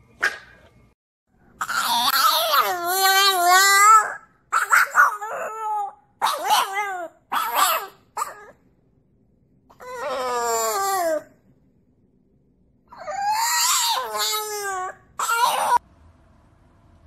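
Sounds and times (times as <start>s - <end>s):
puppy howling: 1.6s - 8.6s, 9.7s - 11.4s, 12.9s - 15.8s.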